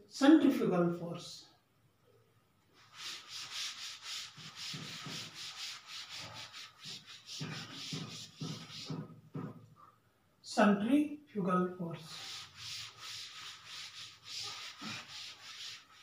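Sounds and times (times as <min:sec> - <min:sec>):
duster rubbing chalkboard: 0:02.8 - 0:09.6, 0:12.0 - 0:16.0.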